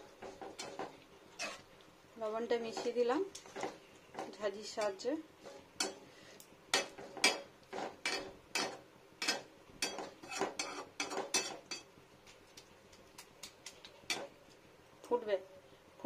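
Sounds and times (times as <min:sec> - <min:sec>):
metal skimmer scraping a pan: 0:00.0 - 0:01.7, 0:06.8 - 0:11.8.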